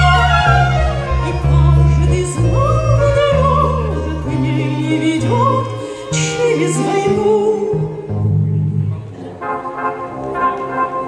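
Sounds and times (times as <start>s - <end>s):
woman singing with vibrato: 0.0s - 8.3s
backing accompaniment with bass: 0.0s - 11.0s.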